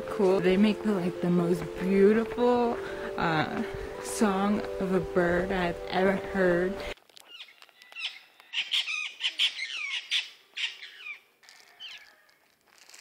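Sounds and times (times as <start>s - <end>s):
parrots calling: 7.3s - 12.2s.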